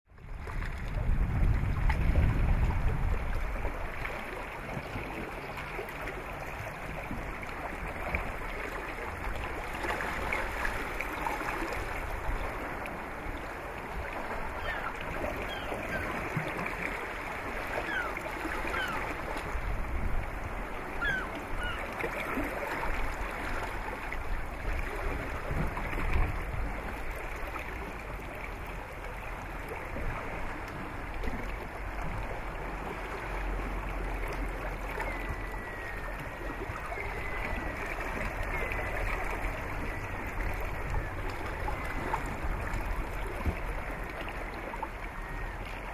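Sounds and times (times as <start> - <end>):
water rushing: 0.1 - 45.9
wind buffeting microphone: 0.2 - 5.3, 9.1 - 27.8, 34.5 - 43.9.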